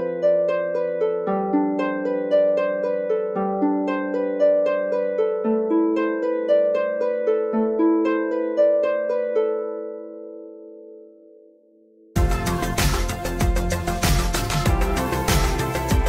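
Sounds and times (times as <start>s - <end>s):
plucked harp-like ringtone melody: 0.0s - 16.0s
held low notes: 12.2s - 16.0s.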